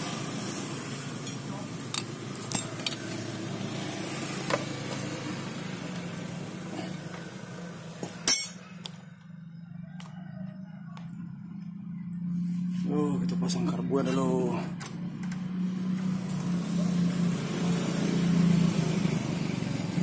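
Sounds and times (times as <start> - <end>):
metal tools clinking on engine: 1.2 - 3.3, 8.0 - 9.0.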